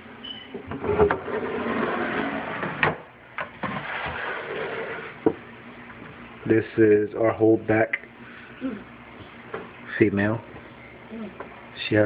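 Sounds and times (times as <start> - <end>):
plastic tub scraping on shelf: 0.7 - 3.0, 3.6 - 5.2.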